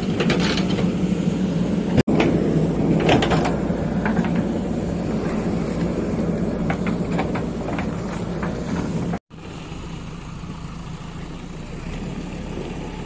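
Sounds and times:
backhoe bucket metallic clanks: 0.0 - 1.1, 2.0 - 9.2
diesel engine running under load: 0.0 - 13.0.

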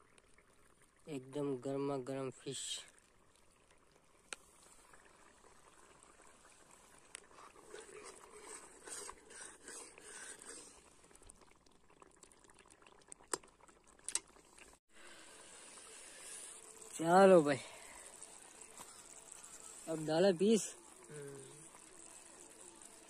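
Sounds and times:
frying oil bubbling: 0.0 - 23.0
metal ladle stirring oil: 7.2 - 10.9.

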